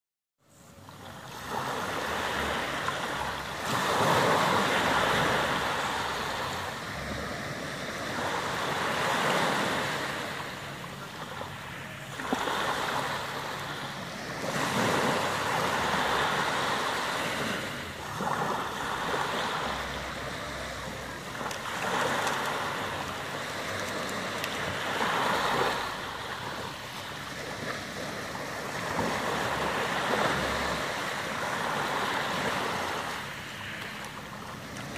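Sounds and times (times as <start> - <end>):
small waves breaking on shore: 0.4 - 34.9.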